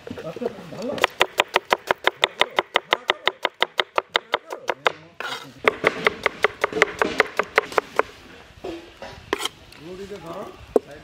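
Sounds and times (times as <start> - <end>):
knife chopping on wooden board: 1.0 - 8.1.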